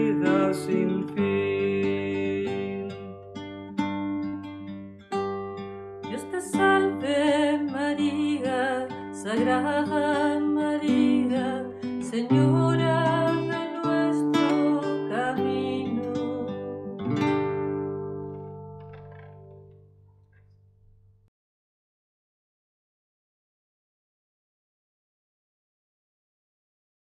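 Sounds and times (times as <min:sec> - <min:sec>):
acoustic guitar playing hymn: 0:00.0 - 0:21.0.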